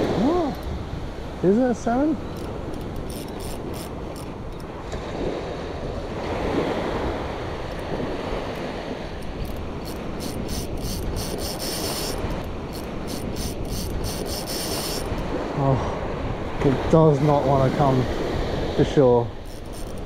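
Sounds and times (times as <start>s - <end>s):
wind buffeting microphone: 0.0s - 20.0s
fishing reel ticking: 2.2s - 4.7s, 8.5s - 15.2s, 19.4s - 20.0s.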